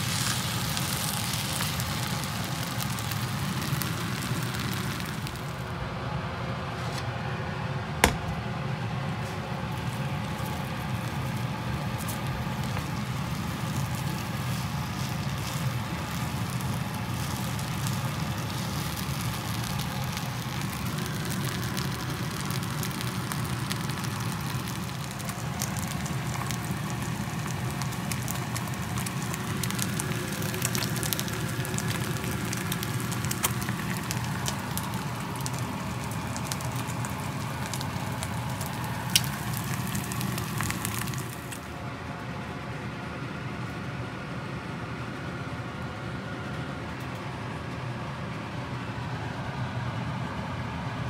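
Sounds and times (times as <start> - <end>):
rice and eggs sizzling in a pan: 0.0 - 5.6, 9.7 - 41.8
low steady hum: 0.0 - 51.0
sharp pops: 8.0 - 8.4.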